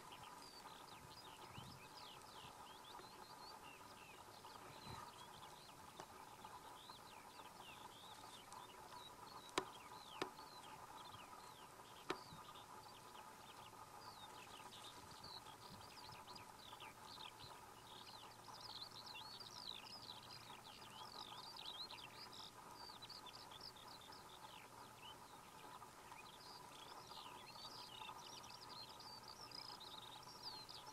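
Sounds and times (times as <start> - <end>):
songbirds chirping: 0.0 - 30.9
sharp clicks: 12.0 - 12.4.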